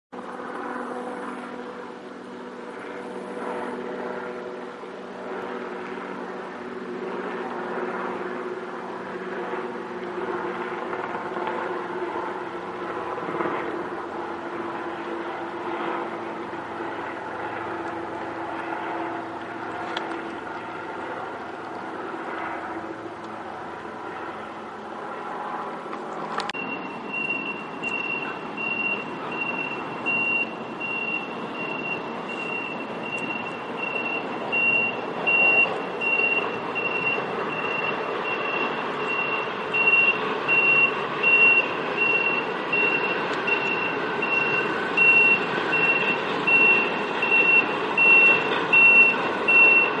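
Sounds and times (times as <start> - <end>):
diesel truck engine: 0.1 - 50.0
helicopter rotor and engine: 0.1 - 50.0
backup alarm beeping: 26.6 - 50.0.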